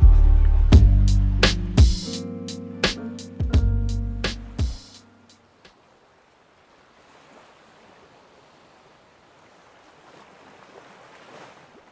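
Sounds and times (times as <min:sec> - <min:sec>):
faint sea surf: 0:04.3 - 0:11.9.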